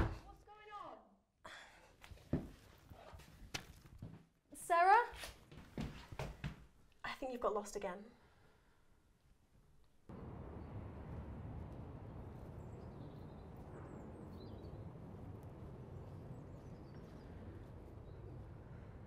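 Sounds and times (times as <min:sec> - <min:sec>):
faint birds chirping: 0:10.1 - 0:19.0
steady low rumble: 0:10.1 - 0:19.0.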